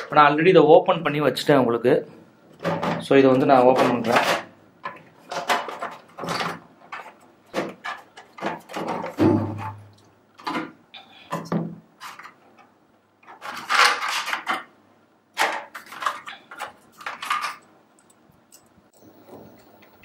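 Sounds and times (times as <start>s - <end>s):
hard plastic knocks and clatters: 2.5s - 3.1s, 3.7s - 14.7s
plastic scraping: 2.6s - 12.6s, 13.2s - 14.7s.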